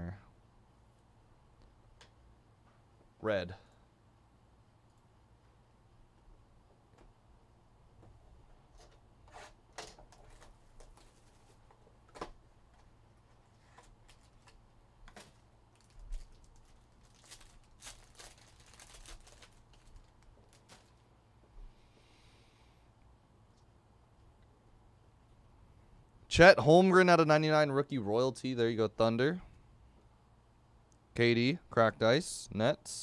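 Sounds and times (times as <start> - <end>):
plastic wrapper crinkling and tearing: 13.5 - 21.0.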